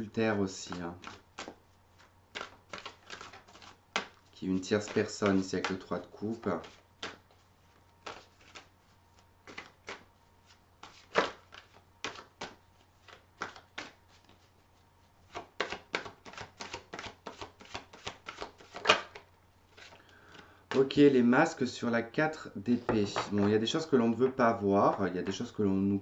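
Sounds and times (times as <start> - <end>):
cards being shuffled: 0.6 - 21.0.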